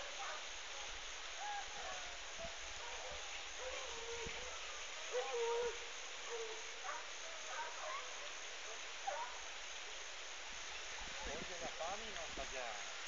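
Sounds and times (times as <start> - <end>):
distant dogs baying: 0.0 - 9.6
faint outdoor hiss: 0.0 - 13.0.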